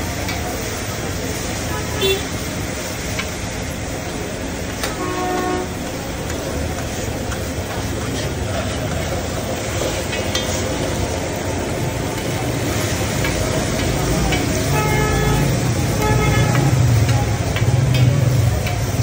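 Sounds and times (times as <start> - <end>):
liver sizzling on a griddle: 0.0 - 19.0
spatula clicking against pan: 16.5 - 19.0.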